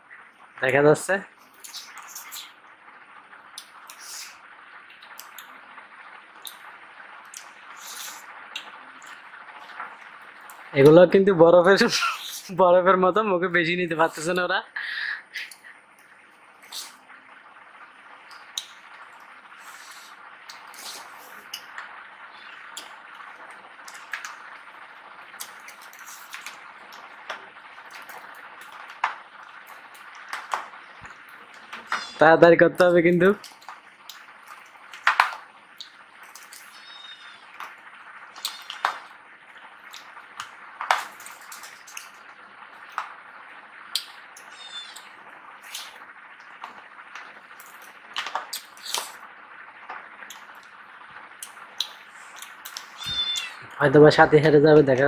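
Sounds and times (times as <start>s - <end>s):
steady background hiss: 0.0s - 55.0s
faint eating sounds: 1.4s - 5.6s, 14.8s - 49.3s, 50.2s - 54.0s.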